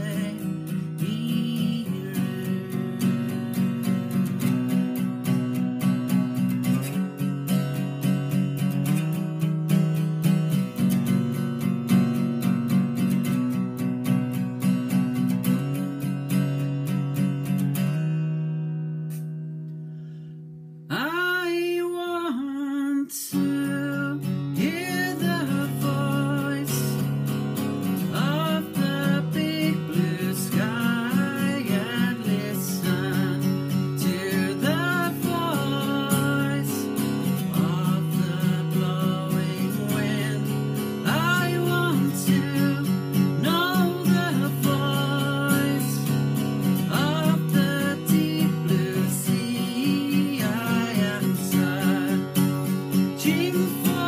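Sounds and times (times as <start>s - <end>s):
man singing: 0.0s - 4.0s, 20.9s - 27.3s, 28.0s - 54.0s
acoustic guitar strumming: 0.0s - 54.0s.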